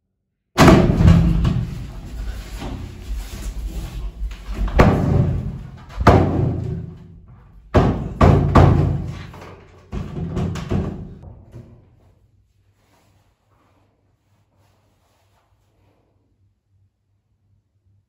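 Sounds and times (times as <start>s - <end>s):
heavy bangs on a door: 0.6s - 2.1s, 4.6s - 11.5s.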